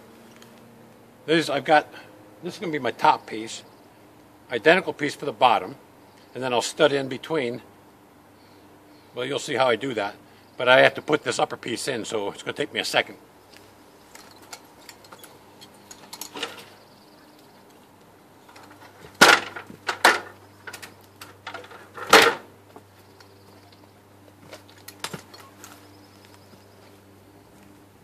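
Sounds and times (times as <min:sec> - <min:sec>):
stepladder knocks and clatters: 0:18.5 - 0:20.8, 0:21.4 - 0:22.5.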